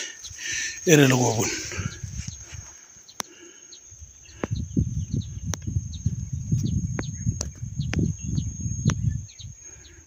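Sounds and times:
faint bird chirps: 0:00.0 - 0:10.0
low rumble on microphone: 0:04.0 - 0:10.0.

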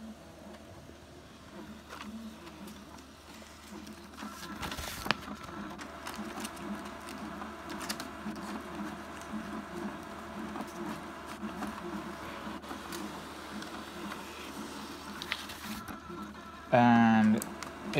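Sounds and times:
printer motors whirring: 0:00.0 - 0:17.9.

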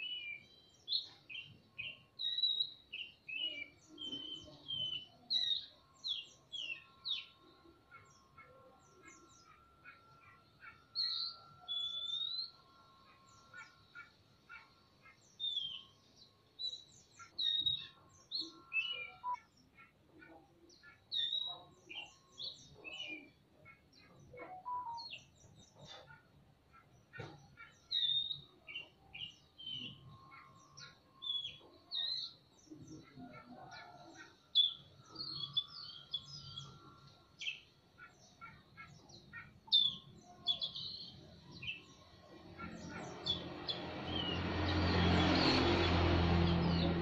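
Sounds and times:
bird singing whistles and chirps: 0:00.0 - 0:07.4, 0:11.0 - 0:12.6, 0:16.6 - 0:19.4, 0:24.3 - 0:25.6.

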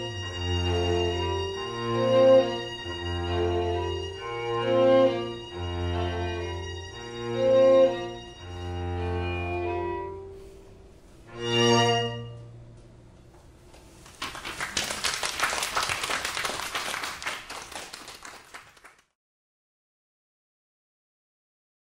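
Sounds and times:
string quartet chord: 0:00.0 - 0:12.8
audience applauding: 0:14.0 - 0:19.2.

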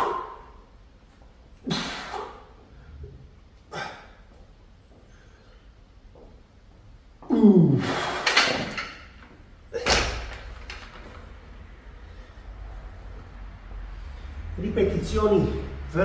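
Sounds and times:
grunt of effort: 0:07.2 - 0:08.2.

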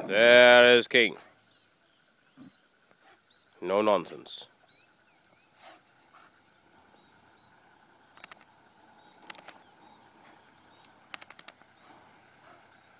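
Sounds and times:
faint bird chirps: 0:01.1 - 0:12.9
sharp clicks: 0:08.1 - 0:08.5, 0:09.1 - 0:09.6, 0:10.7 - 0:11.7.

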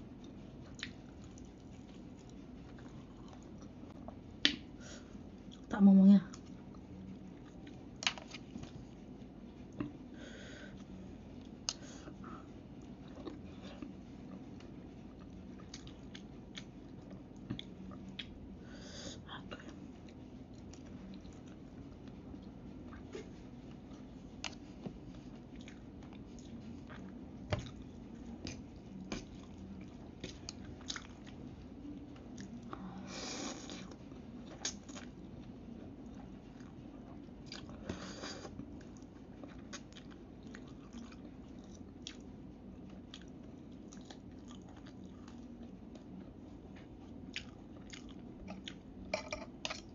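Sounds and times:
chewing noodles: 0:00.1 - 0:04.6, 0:06.3 - 0:10.0, 0:10.7 - 0:18.6, 0:19.7 - 0:32.8, 0:33.4 - 0:49.9
metal fork clinking on plate: 0:49.1 - 0:49.5.

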